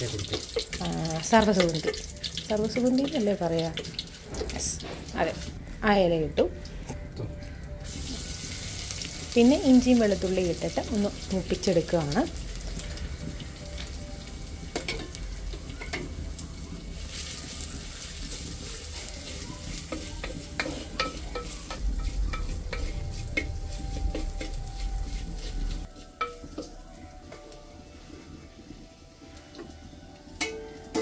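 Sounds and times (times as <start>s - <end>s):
sizzling in hot oil: 0.0s - 6.8s, 7.8s - 31.0s
spatula scraping pot: 17.9s - 26.8s.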